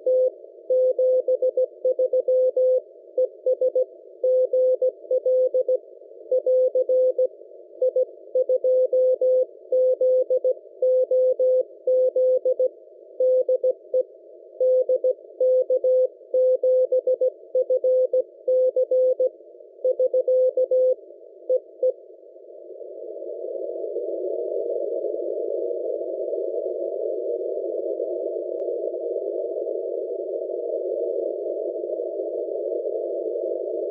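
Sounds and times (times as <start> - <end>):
radio receiver hiss: 22.4 - 33.9.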